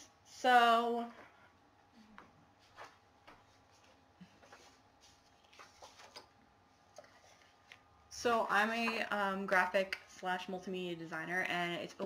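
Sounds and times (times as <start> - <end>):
faint clicks and taps: 8.8 - 9.1.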